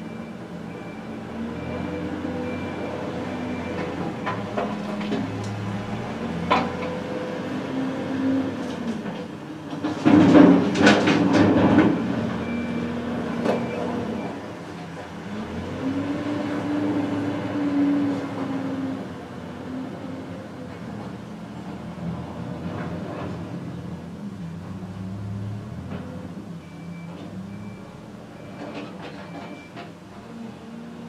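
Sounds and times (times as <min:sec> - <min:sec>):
excavator diesel engine: 0:00.0 - 0:31.0
bucket clattering and scraping road: 0:03.8 - 0:07.0, 0:08.6 - 0:12.3.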